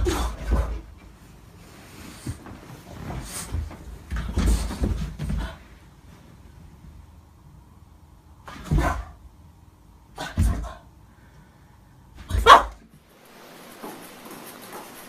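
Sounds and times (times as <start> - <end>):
dog barking: 12.3 - 12.8.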